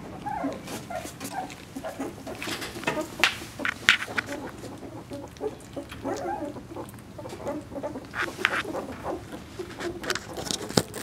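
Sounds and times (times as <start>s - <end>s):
puppies squeaking and whimpering: 0.0s - 11.0s
puppy high cries: 0.2s - 2.0s.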